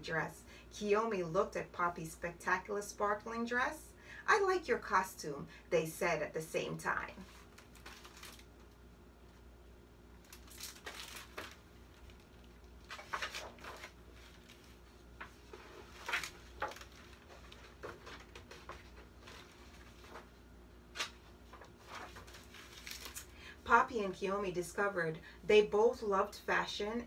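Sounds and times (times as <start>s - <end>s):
paper pages rustling: 7.2s - 8.8s, 10.2s - 23.3s.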